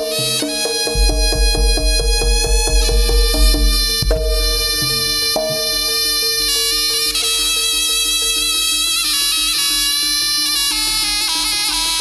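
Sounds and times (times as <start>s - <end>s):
gamelan percussion beat: 0.0s - 7.1s
shrill shawm melody: 0.0s - 11.6s.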